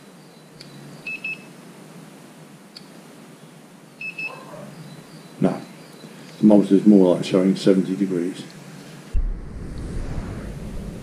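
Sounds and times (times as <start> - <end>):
thermometer high beeps: 4.0 - 4.4.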